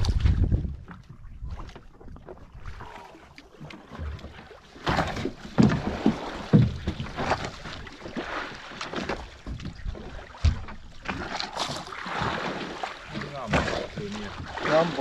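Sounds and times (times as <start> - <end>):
wind buffeting microphone: 0.0 - 2.9
water splashing against boat hull: 0.0 - 15.0.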